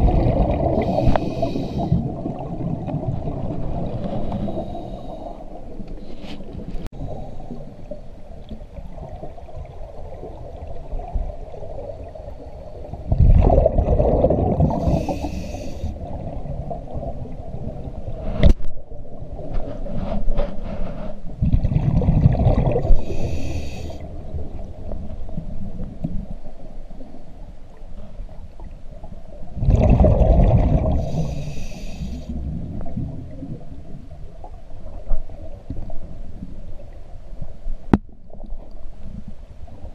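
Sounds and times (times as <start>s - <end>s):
gurgling exhaled bubbles: 0.0s - 5.8s, 8.6s - 18.5s, 21.4s - 26.3s, 29.5s - 31.6s
scuba regulator breathing: 0.6s - 2.2s, 4.0s - 7.6s, 14.6s - 16.0s, 22.8s - 24.1s, 30.9s - 32.4s.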